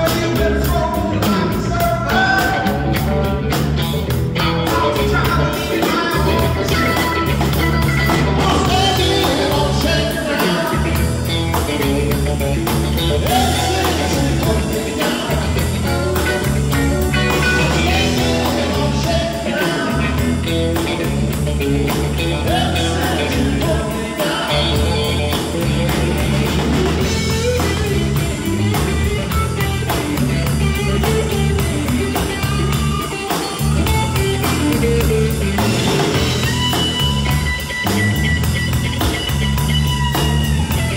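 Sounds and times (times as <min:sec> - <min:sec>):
person singing: 0:00.0 - 0:03.4, 0:04.4 - 0:21.2, 0:21.8 - 0:28.8
blues-rock band playing live: 0:00.0 - 0:40.9
steady drum beat: 0:00.0 - 0:40.9.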